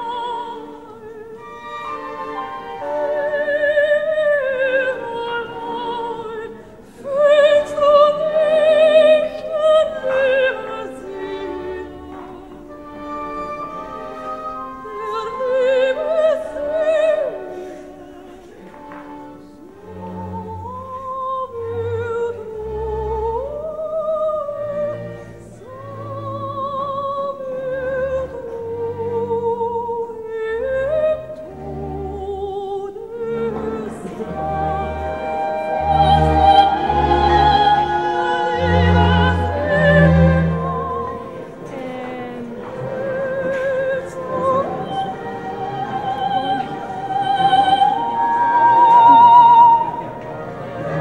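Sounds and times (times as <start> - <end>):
operatic singing: 0.0 - 51.0
orchestral accompaniment: 0.0 - 51.0.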